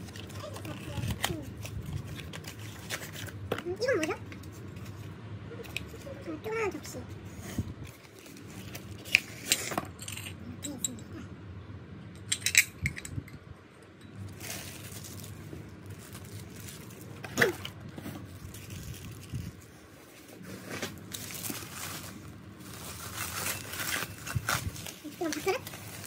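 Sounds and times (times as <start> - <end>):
bubble wrap crinkling: 0.0 - 6.2, 7.8 - 9.2, 14.2 - 26.0.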